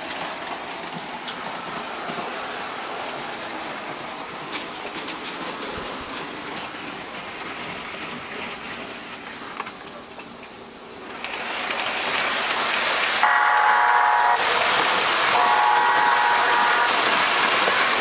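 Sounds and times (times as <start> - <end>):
model train rolling on track: 0.0 - 18.0
model locomotive horn: 13.2 - 14.4, 15.3 - 17.0.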